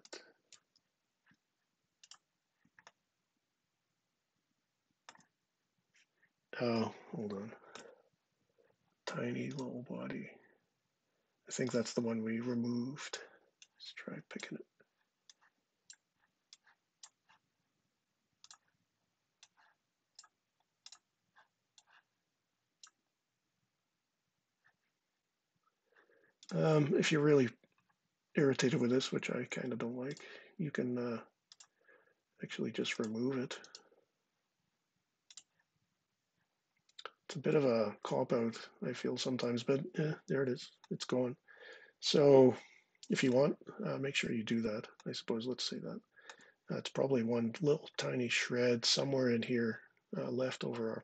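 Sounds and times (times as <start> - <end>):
faint computer mouse clicks: 2.0 - 2.2, 35.3 - 35.6
computer mouse clicks: 2.0 - 3.0, 5.1 - 5.3, 18.4 - 18.8, 19.4 - 22.0, 31.5 - 31.8, 35.3 - 35.7.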